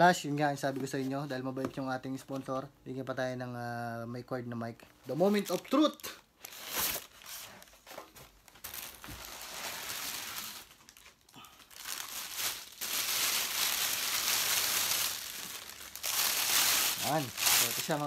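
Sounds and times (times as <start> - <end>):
plastic bag crinkling: 5.3 - 7.6, 8.4 - 18.0.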